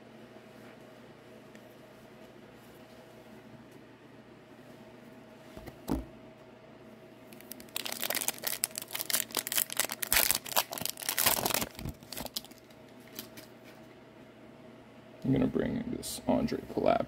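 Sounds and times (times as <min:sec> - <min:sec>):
wrapper tearing and crinkling: 0:07.3 - 0:13.5.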